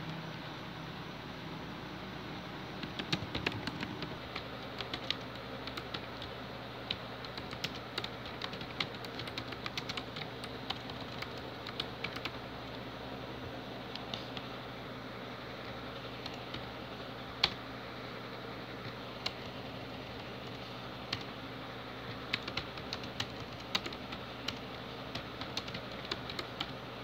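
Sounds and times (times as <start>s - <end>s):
typing on computer keyboard: 2.8s - 12.4s, 22.2s - 26.8s.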